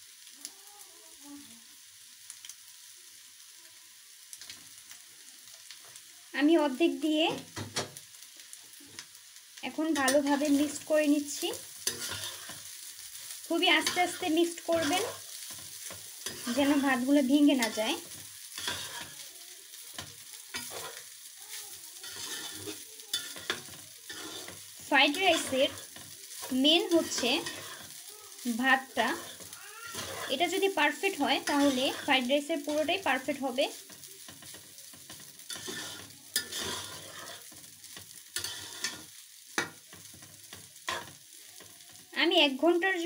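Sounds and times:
frying sizzle: 0.0s - 43.0s
metal spatula scraping pan: 10.0s - 12.7s, 13.6s - 19.2s, 19.9s - 21.1s, 22.0s - 39.8s, 40.9s - 41.2s.

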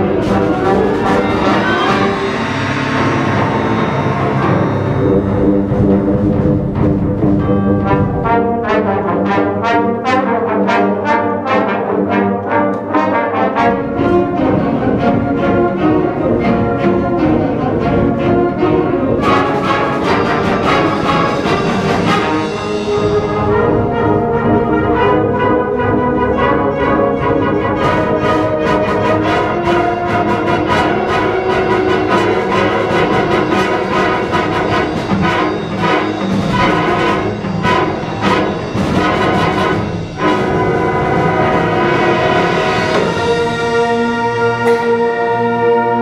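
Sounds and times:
bright wash of high sound: 0.0s - 7.8s
concert band playing loudly: 0.0s - 12.0s, 12.6s - 45.6s.

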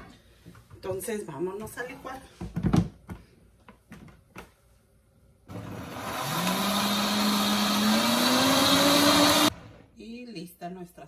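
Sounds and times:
blender motor running: 5.5s - 9.8s.

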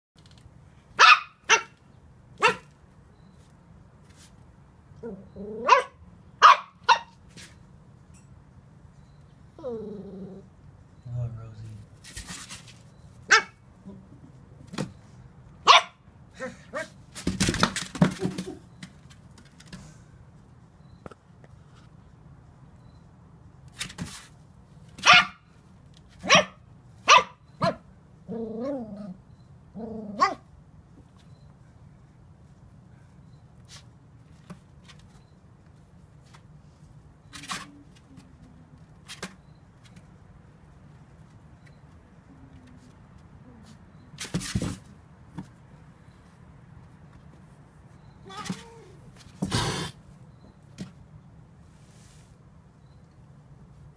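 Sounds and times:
puppy barking: 1.0s - 1.8s, 2.4s - 2.7s, 5.0s - 7.2s, 13.3s - 13.6s, 15.6s - 17.0s, 25.0s - 25.4s, 26.2s - 27.9s, 30.1s - 30.4s.

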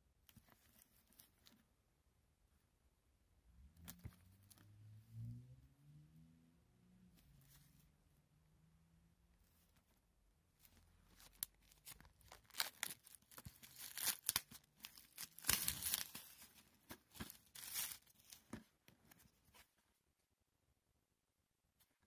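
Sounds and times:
plastic shrink-wrap crackling: 11.0s - 18.4s.

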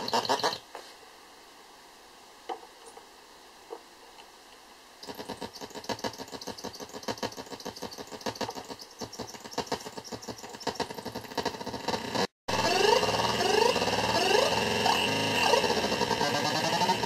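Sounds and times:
crackling clicks and buzzy pulses: 3.7s - 17.0s.

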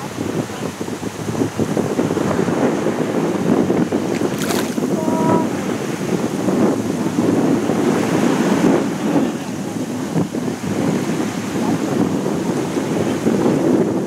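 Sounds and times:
small waves lapping: 0.0s - 13.4s
wind buffeting microphone: 0.0s - 14.0s.

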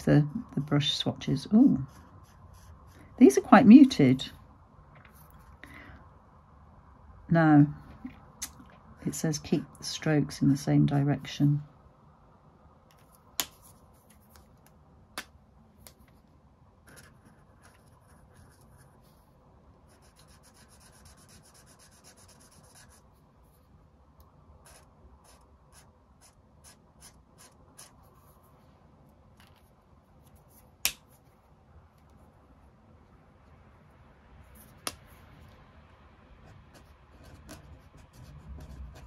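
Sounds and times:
marker pen scratching on paper: 1.7s - 3.0s, 16.8s - 19.2s, 19.9s - 23.1s, 24.6s - 28.4s, 36.5s - 39.0s.

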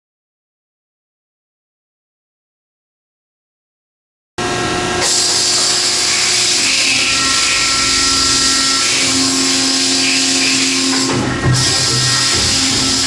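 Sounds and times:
tube bender machine whine and hiss: 4.4s - 13.0s.

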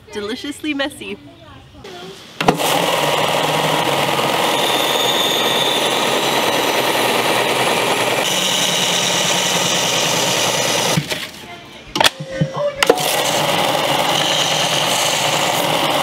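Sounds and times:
belt sander grinding steel: 2.4s - 11.1s, 12.8s - 16.0s.

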